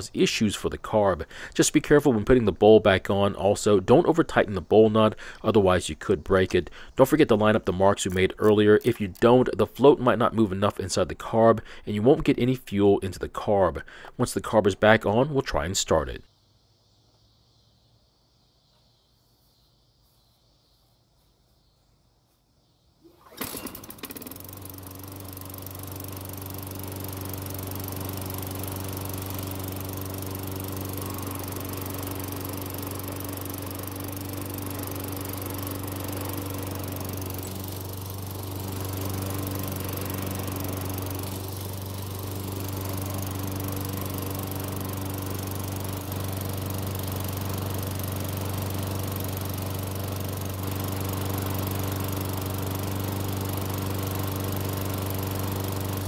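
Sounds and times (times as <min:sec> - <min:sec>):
lawn mower engine running: 0:00.0 - 0:12.7, 0:23.1 - 0:56.0
recoil starter pull: 0:05.0 - 0:10.9, 0:23.0 - 0:56.0.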